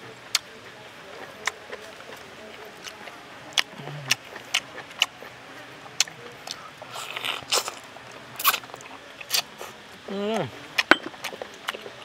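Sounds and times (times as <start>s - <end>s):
chewing noise: 0.0s - 12.0s.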